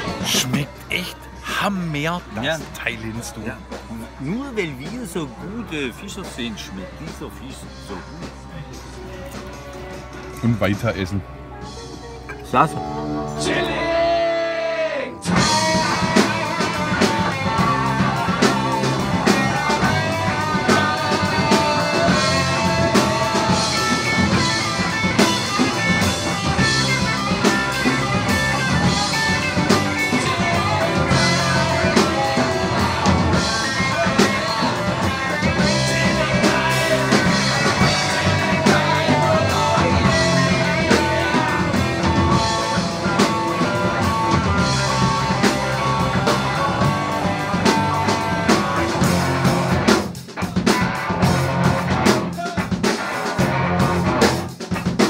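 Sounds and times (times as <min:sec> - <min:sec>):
rock music with guitar and drums: 0:00.0 - 0:55.0.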